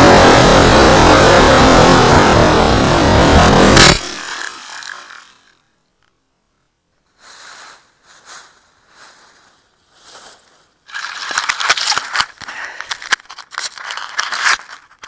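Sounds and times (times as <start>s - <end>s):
dry grass rustling and crackling: 7.0s - 15.0s.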